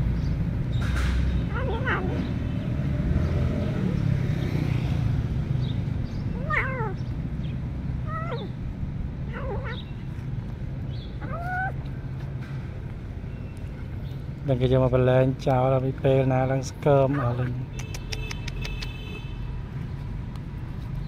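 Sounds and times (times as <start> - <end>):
kitten meowing: 1.5 - 2.2, 6.3 - 7.0, 8.0 - 8.6, 9.3 - 9.9, 11.2 - 11.8
steady low rumble: 5.9 - 17.0.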